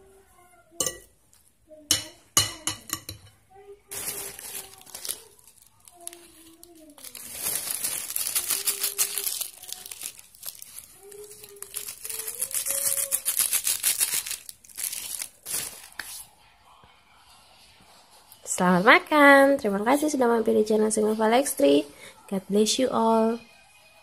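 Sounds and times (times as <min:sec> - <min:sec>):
plastic sachet crinkling: 0:03.8 - 0:16.3.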